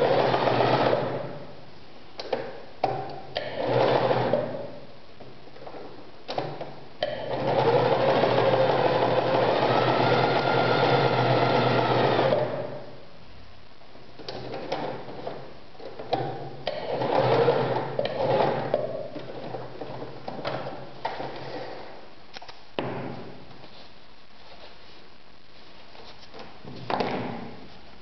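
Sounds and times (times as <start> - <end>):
sewing machine stitching: 0.0 - 1.3, 3.4 - 4.6, 6.3 - 12.8, 16.0 - 21.9.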